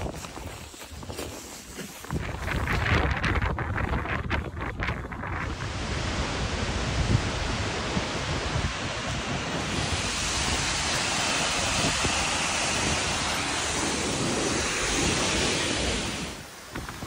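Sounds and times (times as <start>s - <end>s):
waterfall rushing: 5.4s - 16.8s.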